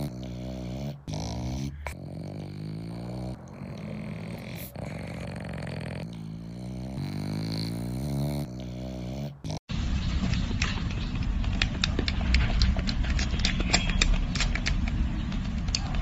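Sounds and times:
dog grumbling: 0.0 - 9.7.

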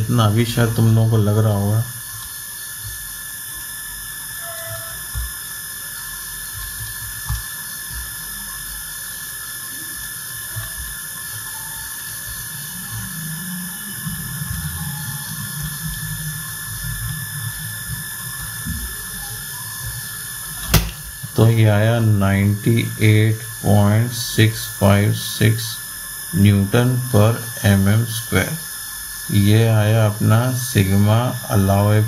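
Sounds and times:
low hiss: 0.0 - 2.0, 20.4 - 32.0
high-pitched electronic whine: 0.0 - 32.0
soft low hum: 12.3 - 32.0.

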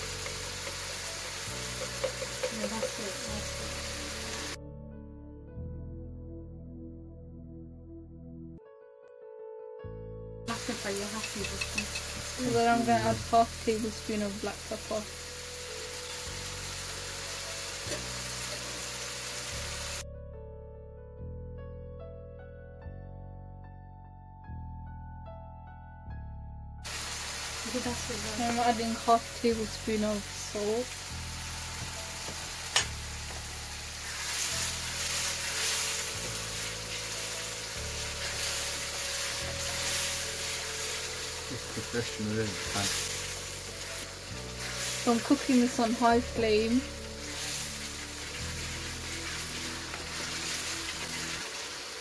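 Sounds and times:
spatula stirring: 0.0 - 3.2, 34.0 - 41.3, 42.5 - 45.5, 47.0 - 51.6
sauce sizzling in a wok: 0.0 - 4.6, 10.5 - 20.0, 26.8 - 52.0
soft background music: 0.0 - 52.0.

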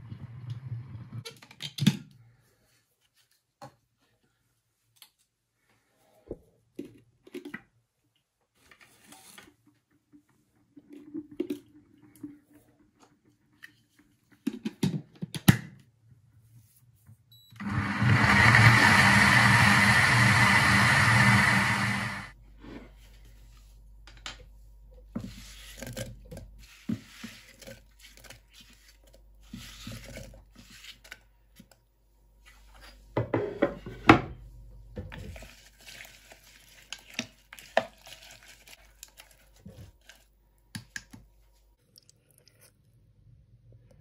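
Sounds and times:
blender motor: 17.6 - 22.4.

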